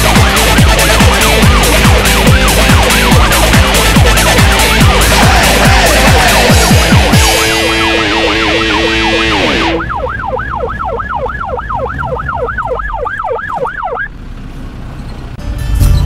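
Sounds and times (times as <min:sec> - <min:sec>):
background music: 0:00.0 - 0:09.8
fire engine siren yelping: 0:00.0 - 0:14.2.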